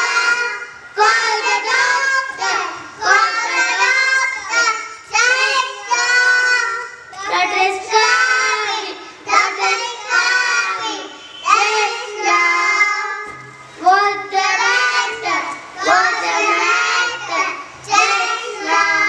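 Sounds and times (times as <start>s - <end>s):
children singing a rhyme: 0.0s - 19.0s.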